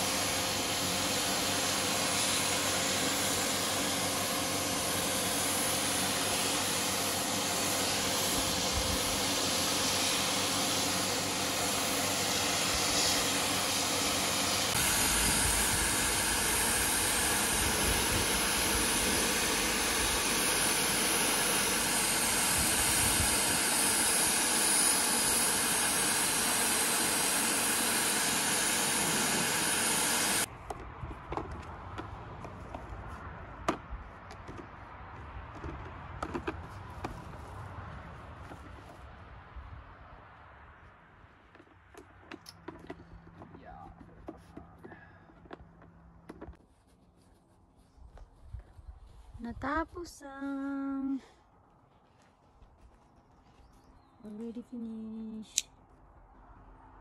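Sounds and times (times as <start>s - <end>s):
hiss of spray gun: 0.0s - 30.5s
paint sprayer motor drone: 0.0s - 30.5s.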